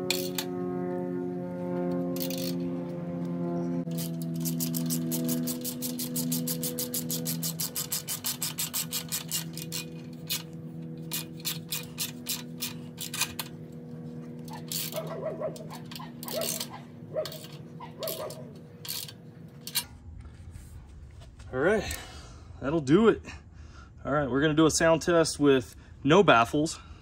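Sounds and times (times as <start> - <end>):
socket ratchet clicking: 2.2 - 2.6, 3.9 - 13.6, 14.4 - 19.8
metal squeaking: 3.6 - 19.8.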